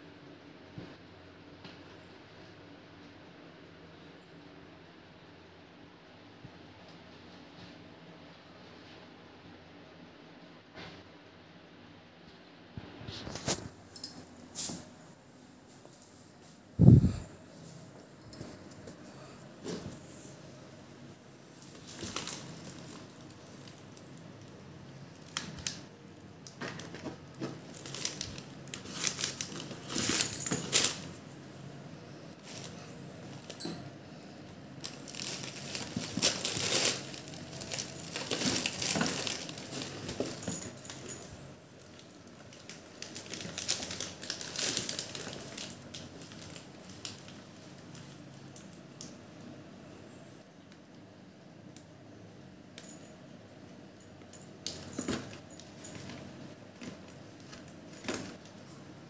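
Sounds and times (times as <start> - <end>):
plastic bag crinkling: 21.6 - 23.8, 26.6 - 31.1, 34.8 - 41.1, 41.9 - 47.4
kitten scrambling in fabric bag: 34.8 - 41.1.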